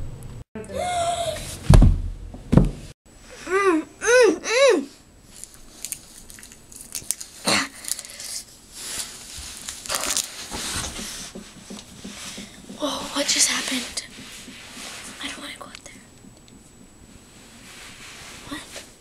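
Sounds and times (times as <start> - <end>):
person crying out: 0.7 - 1.4, 3.4 - 4.9
rustling handling noise: 5.3 - 19.0.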